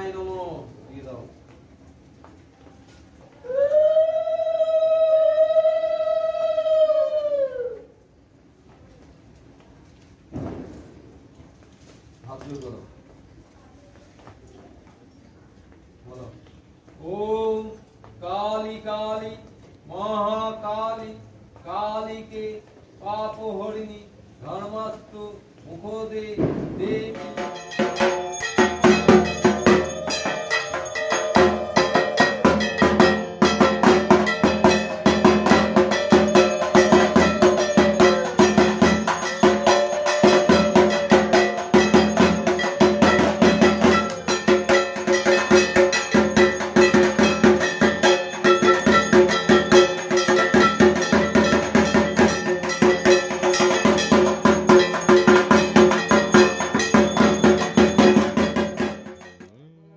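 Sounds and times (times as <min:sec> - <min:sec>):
barrel drum beaten with sticks: 0:26.4 - 0:59.5
metal percussion ringing: 0:26.4 - 0:59.7.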